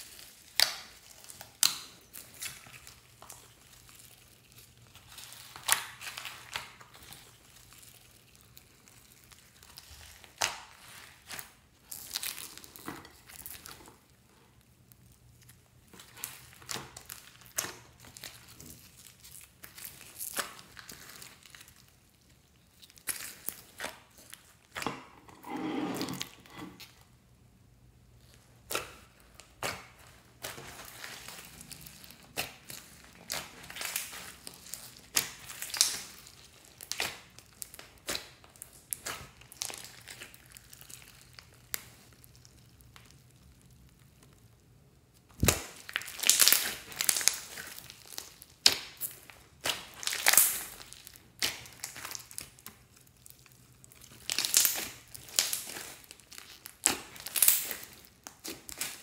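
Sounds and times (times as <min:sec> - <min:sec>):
hands kneading slime: 0:00.0 - 0:27.0, 0:28.0 - 0:59.0
sticky crackles and clicks: 0:28.3 - 0:59.0.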